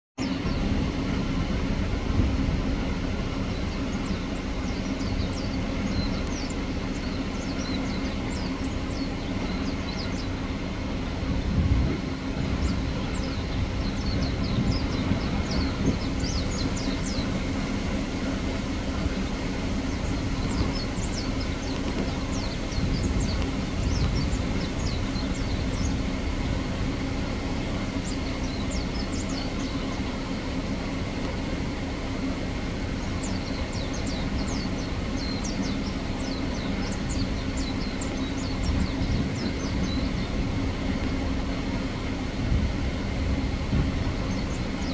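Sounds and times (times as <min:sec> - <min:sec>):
low mechanical drone: 0:00.2 - 0:44.9
high bird chirps: 0:18.3 - 0:26.2.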